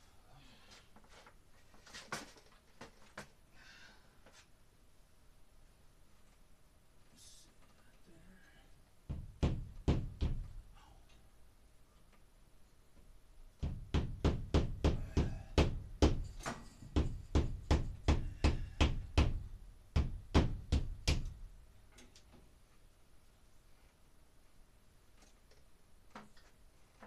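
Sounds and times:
hammer tapping wall anchor: 9.1s - 10.6s, 13.6s - 21.4s.

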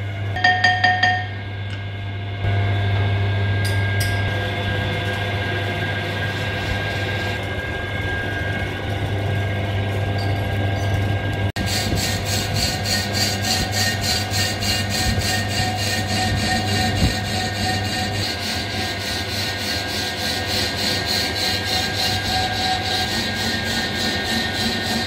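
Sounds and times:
lathe motor hum: 2.3s - 25.0s
cutting bit scraping metal: 11.6s - 25.0s.

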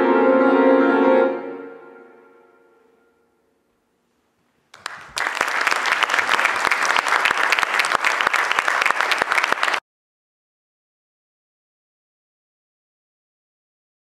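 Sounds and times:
audience applauding: 4.7s - 9.8s.

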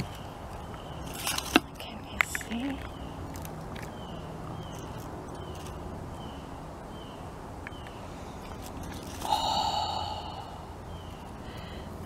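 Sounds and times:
person breathing sharply: 9.2s - 12.0s.

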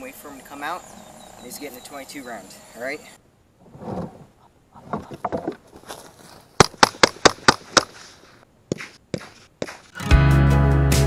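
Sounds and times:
background music: 10.0s - 11.0s.

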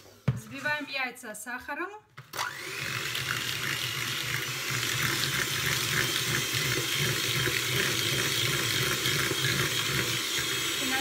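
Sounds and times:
electric hand mixer whisking: 2.3s - 11.0s.

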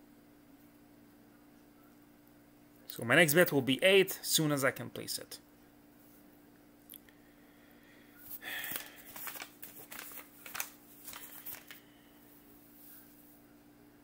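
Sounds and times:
faint steady hum: 0.0s - 14.0s
rustling with sharp clicks: 8.3s - 11.8s.

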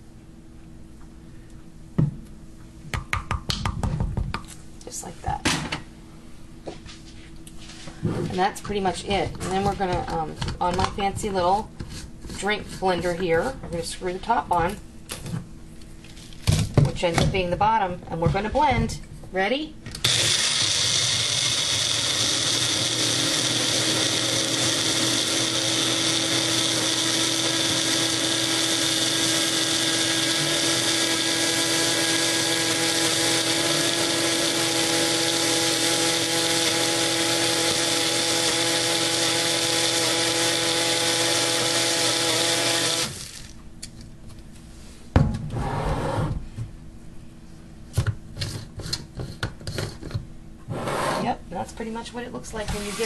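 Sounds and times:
blender crushing ice: 20.0s - 43.6s.

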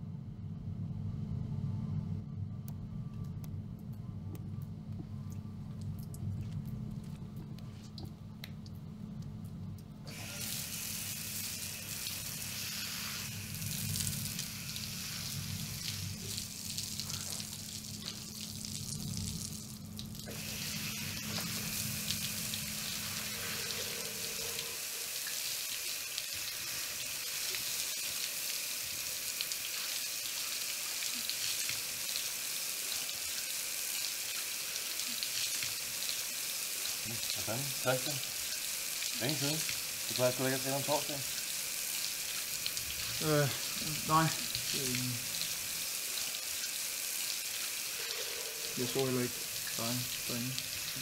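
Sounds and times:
low steady hum: 0.0s - 25.4s
shower water spraying on tiles: 10.1s - 51.0s.

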